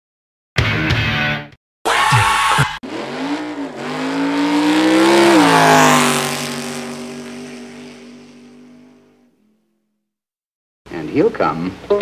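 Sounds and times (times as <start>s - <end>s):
car engine revving: 2.8s - 9.4s.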